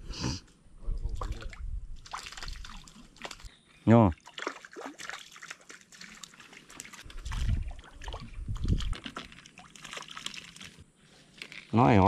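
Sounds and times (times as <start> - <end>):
water trickling and splashing: 0.9 - 3.5, 4.1 - 11.7
small crackles: 8.8 - 12.0.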